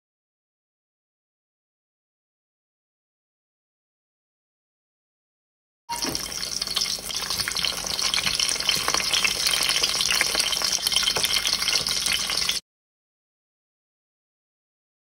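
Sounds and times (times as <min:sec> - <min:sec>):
pepper and garlic sizzling in oil: 0:05.9 - 0:12.6.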